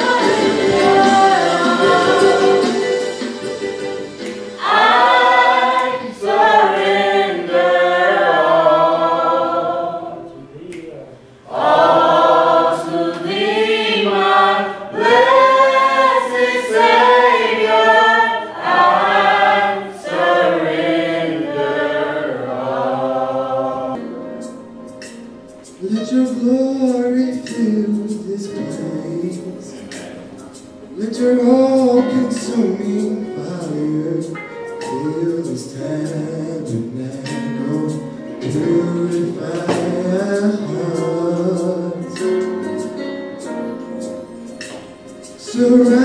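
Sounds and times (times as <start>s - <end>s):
group singing gospel song: 0.0s - 10.4s, 11.4s - 24.0s, 25.8s - 43.0s, 44.3s - 46.0s.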